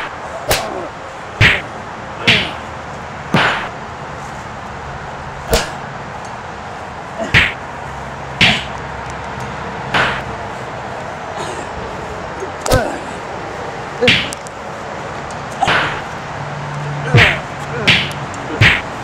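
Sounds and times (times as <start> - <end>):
swishing hits: 0.0 - 2.7, 3.3 - 3.8, 5.4 - 5.9, 7.2 - 7.6, 8.4 - 8.8, 9.9 - 10.3, 14.0 - 14.4, 15.6 - 16.2, 17.1 - 19.0.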